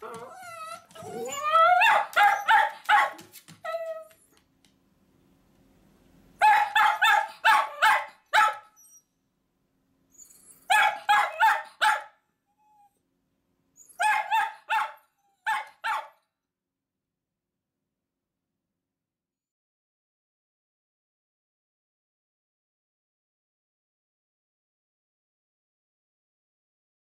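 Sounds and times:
dog barking: 1.8s - 3.3s, 6.4s - 8.8s, 10.7s - 12.2s, 14.0s - 16.2s.

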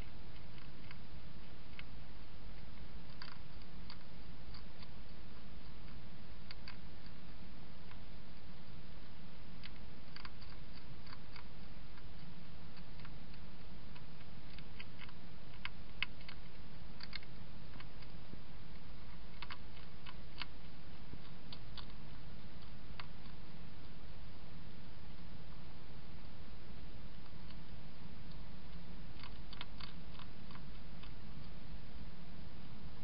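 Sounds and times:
low hum: 0.0s - 33.0s
hedgehog crunching food: 2.6s - 7.2s, 9.6s - 23.4s, 28.3s - 31.2s.

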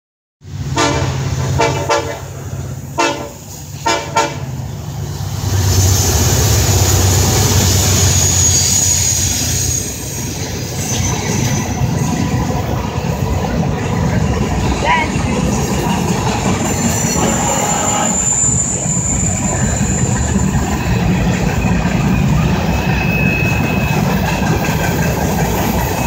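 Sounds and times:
freight cars rumbling by: 0.4s - 26.0s
locomotive passing loudly: 0.4s - 26.0s
train air horn blasts: 0.7s - 2.4s, 3.0s - 4.5s, 17.0s - 18.6s.

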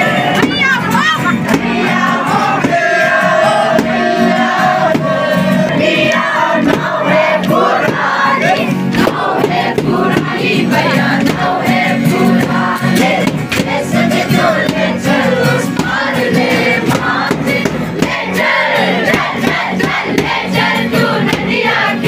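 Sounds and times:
acoustic guitar: 0.0s - 22.0s
crowd singing a carol: 0.0s - 22.0s
hand claps: 6.0s - 8.1s.

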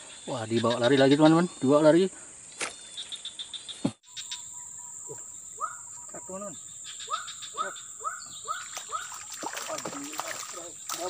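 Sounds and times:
insects buzzing shrilly: 4.1s - 11.0s.

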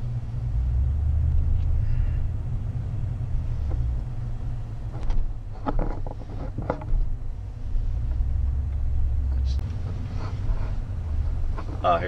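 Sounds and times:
vehicle road and engine rumble: 0.0s - 12.0s
short knocks and rattles: 4.9s - 7.1s.

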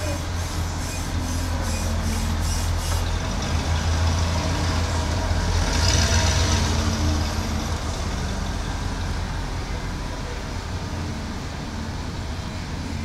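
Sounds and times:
pickup truck driving past: 1.9s - 10.4s.

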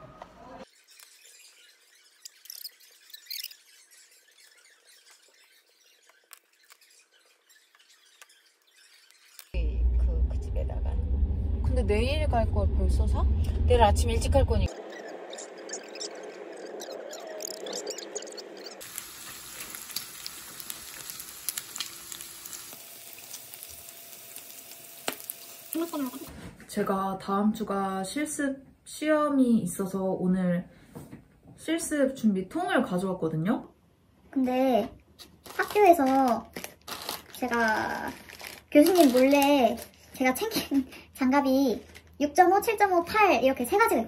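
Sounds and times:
short high squeaks: 0.7s - 9.6s
meat sizzling with fat popping: 18.8s - 26.3s.

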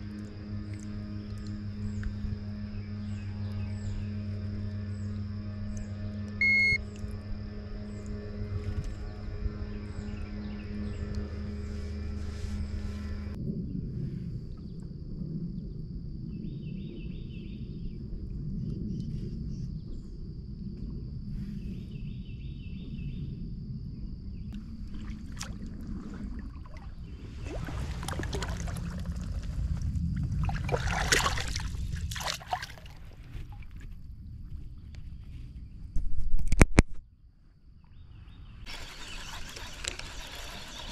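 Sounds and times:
steady low rumble: 0.0s - 36.4s
small chirps: 5.8s - 7.0s
thin high whine: 6.4s - 6.9s
water splashing: 24.6s - 33.8s.

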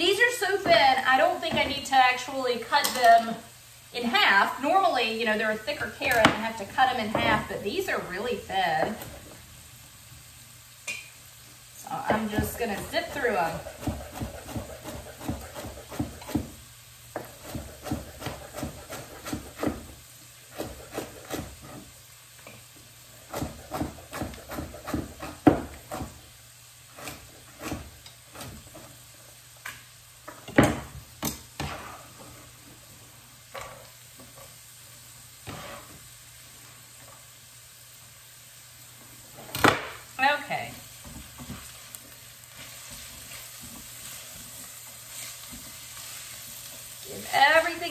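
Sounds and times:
vegetables sizzling in a pot: 0.0s - 47.9s
knife chopping on wooden board: 12.1s - 16.6s, 17.2s - 19.9s, 20.5s - 21.9s, 23.3s - 26.2s, 27.0s - 28.6s.

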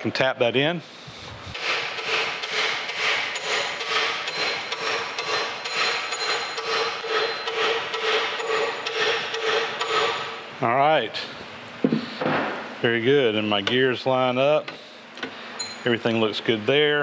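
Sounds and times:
hammer tapping metal shaft: 1.6s - 10.4s.

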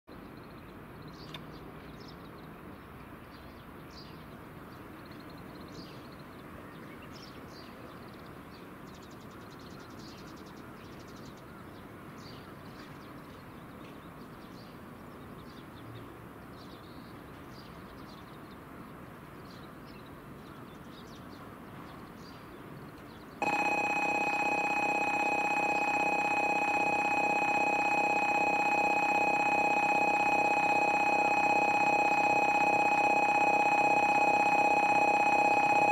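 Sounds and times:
electronic platform alarm: 23.4s - 35.9s.

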